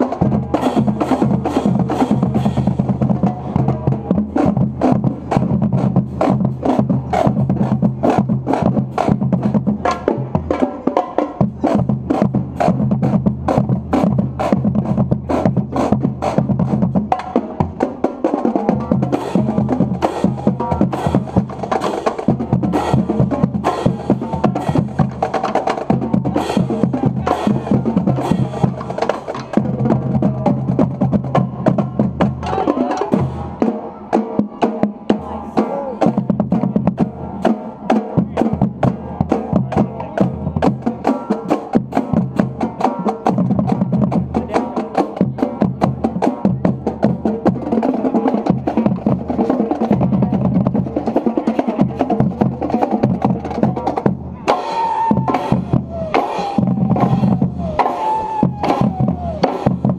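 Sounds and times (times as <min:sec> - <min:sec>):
marching band playing: 0:00.0 - 0:59.9
snare drum strokes: 0:54.5 - 0:59.9.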